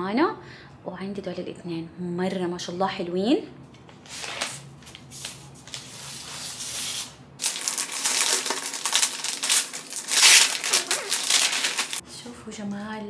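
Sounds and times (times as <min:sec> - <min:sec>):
paper wrapping rustling: 0:04.0 - 0:12.0.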